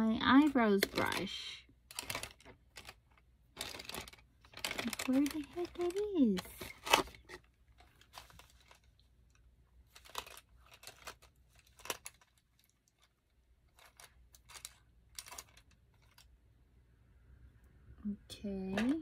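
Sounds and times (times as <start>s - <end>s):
rummaging clicks and rustles: 1.9s - 16.3s.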